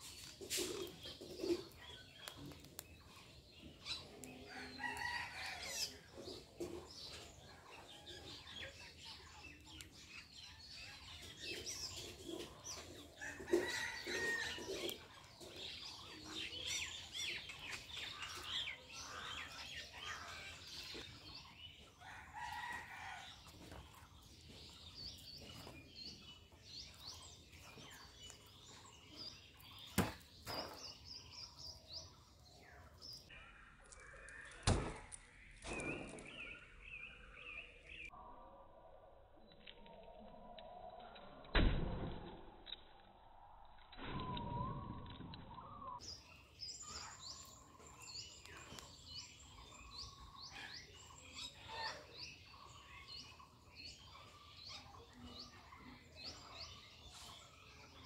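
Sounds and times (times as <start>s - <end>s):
chickens clucking: 0.0s - 8.6s, 11.0s - 22.0s, 46.8s - 57.9s
birds chirping: 0.0s - 41.5s, 43.0s - 58.0s.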